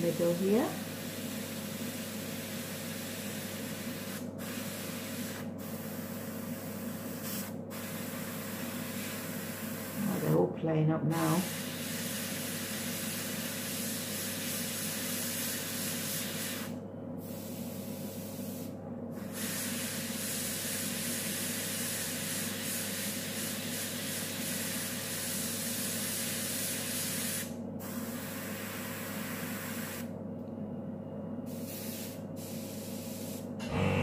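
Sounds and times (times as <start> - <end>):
airbrush spraying hiss: 0.1 - 10.2, 11.4 - 30.1, 31.5 - 33.5
steady low hum: 30.1 - 34.0.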